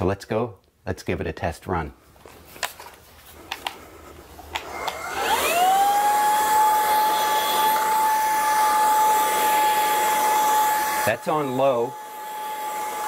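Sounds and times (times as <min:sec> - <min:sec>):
vacuum motor whine: 0:04.4 - 0:13.0.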